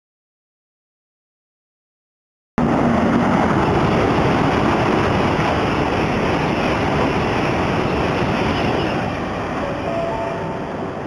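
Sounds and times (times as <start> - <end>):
high-speed train passing: 2.6 - 11.0.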